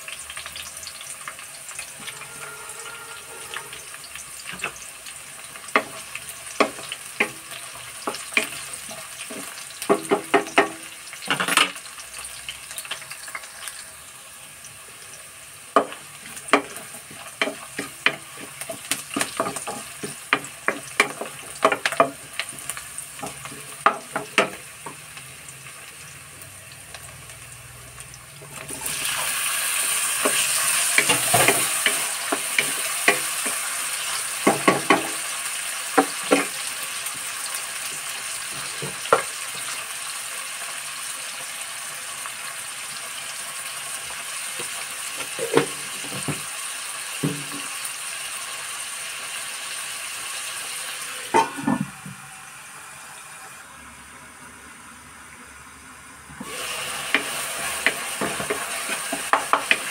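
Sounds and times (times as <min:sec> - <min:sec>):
tomatoes sizzling in hot oil: 0:00.0 - 0:59.9
metal lid clanking: 0:51.3 - 0:52.1.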